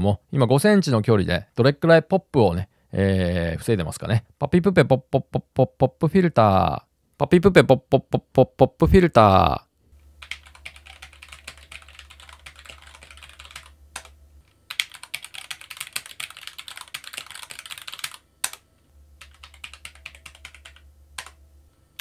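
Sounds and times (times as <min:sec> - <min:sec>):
faint low hum: 0:00.0 - 0:22.0
keyboard typing: 0:10.2 - 0:21.4.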